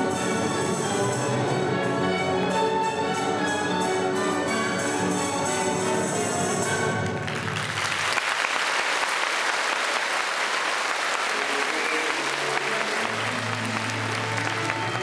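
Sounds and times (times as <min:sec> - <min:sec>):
orchestral music: 0:00.0 - 0:08.2, 0:11.2 - 0:15.0
audience applauding: 0:07.0 - 0:15.0.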